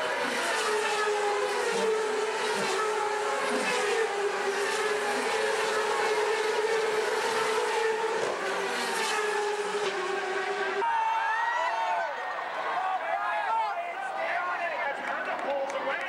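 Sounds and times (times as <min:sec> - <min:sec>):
race car engines at speed: 0:00.0 - 0:10.9.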